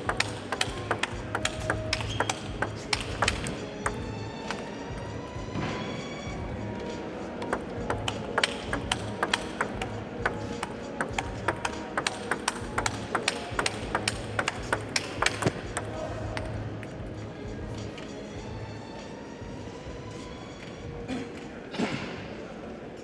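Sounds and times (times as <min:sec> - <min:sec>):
ping pong ball clicking: 0:00.0 - 0:04.0, 0:07.5 - 0:15.9
steady music: 0:00.0 - 0:21.2.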